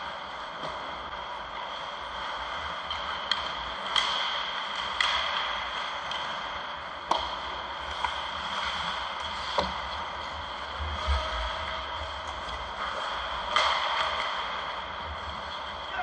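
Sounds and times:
skates on ice: 0:00.1 - 0:16.0
hockey sticks hitting puck: 0:02.9 - 0:07.5, 0:13.4 - 0:14.8.

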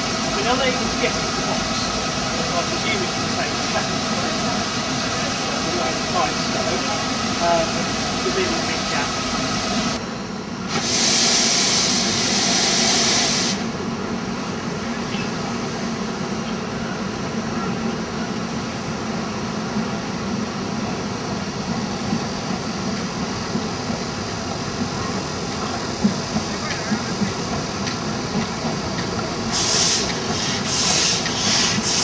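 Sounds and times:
steam hissing: 0:00.0 - 0:10.0, 0:10.6 - 0:13.8, 0:21.5 - 0:32.0
steam locomotive running: 0:00.0 - 0:32.0.

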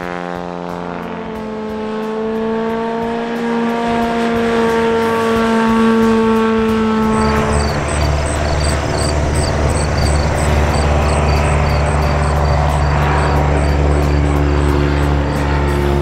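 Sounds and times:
engine humming with hiss: 0:00.0 - 0:16.0
faint high ticking: 0:07.0 - 0:16.0.

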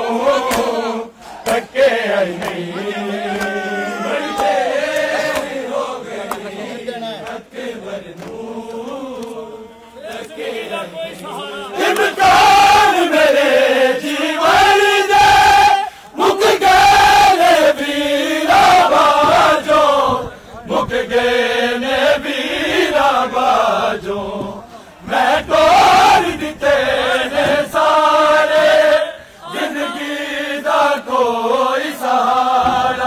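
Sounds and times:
men chanting a lament: 0:00.0 - 0:33.0
chest-beating slaps: 0:00.5 - 0:01.7.

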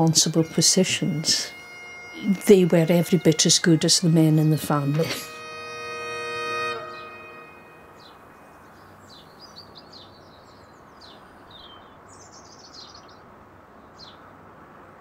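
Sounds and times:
held musical chord: 0:00.0 - 0:09.2
outdoor background noise: 0:00.0 - 0:15.0
small birds chirping and singing: 0:07.8 - 0:14.2.

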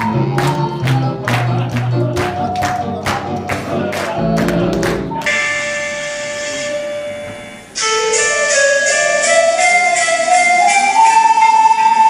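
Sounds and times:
live band with singing: 0:00.0 - 0:05.6
ocarina ensemble sustained note: 0:00.0 - 0:12.0.

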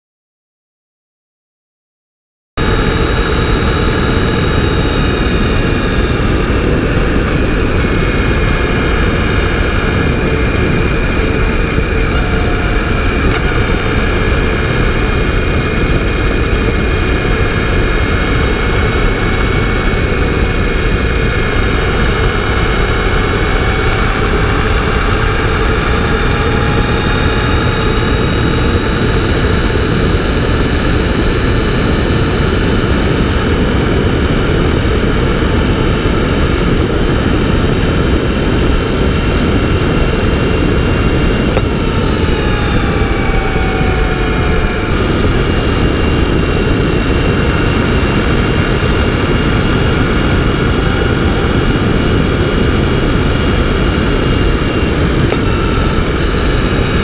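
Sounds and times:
motorcycle engine running: 0:02.6 - 0:57.0
thin high whines: 0:02.6 - 0:57.0
wind rush: 0:02.6 - 0:57.0
road noise: 0:03.5 - 0:31.1.

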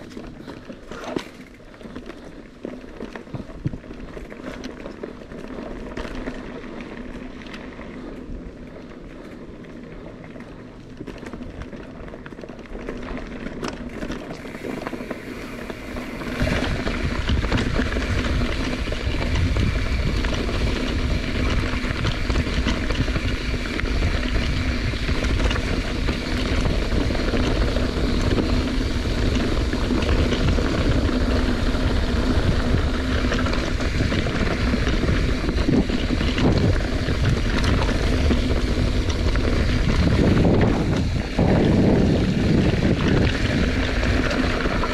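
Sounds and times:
wind rushing over microphone: 0:14.3 - 0:44.9
steady low hum: 0:14.4 - 0:44.9.

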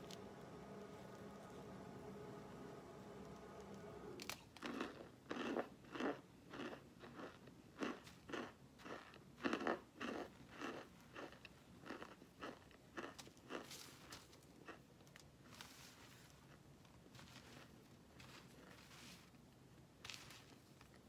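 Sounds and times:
person chewing crunchy food: 0:04.2 - 0:19.3.

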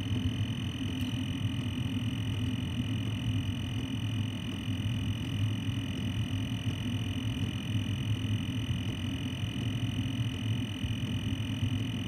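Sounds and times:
diesel air heater running: 0:00.0 - 0:12.0.

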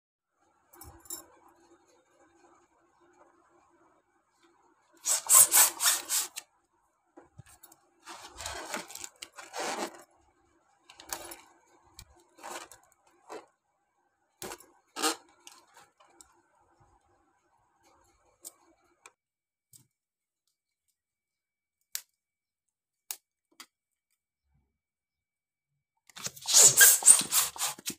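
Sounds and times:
hand pump strokes: 0:05.0 - 0:06.4, 0:26.2 - 0:27.9
latex balloon rubbing: 0:05.0 - 0:06.4, 0:08.1 - 0:10.0, 0:26.2 - 0:27.9.

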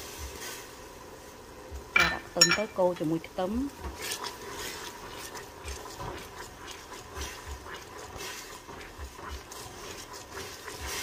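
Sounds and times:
syrup sizzling: 0:00.0 - 0:11.0
wooden spoon scraping a pot: 0:03.4 - 0:11.0.

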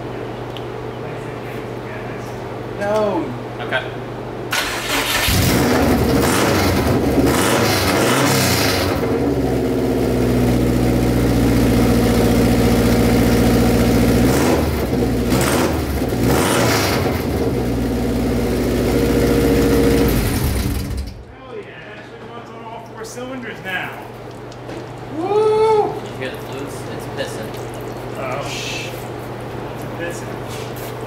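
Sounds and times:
car engine running: 0:05.2 - 0:21.3.

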